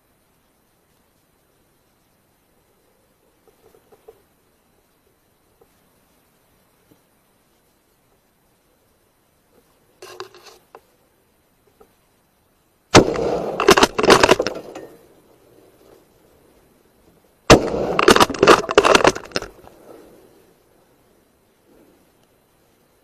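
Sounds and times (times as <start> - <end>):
rifle shots: 12.9 - 14.8, 17.5 - 19.4.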